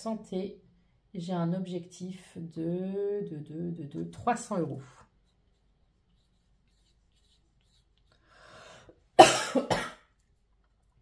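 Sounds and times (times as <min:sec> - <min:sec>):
felt-tip pen scratching on paper: 0:04.2 - 0:08.1.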